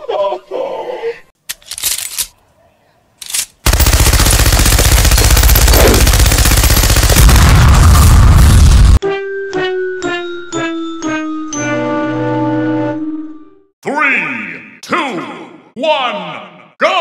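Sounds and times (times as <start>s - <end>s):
machine gun firing: 3.6s - 8.2s.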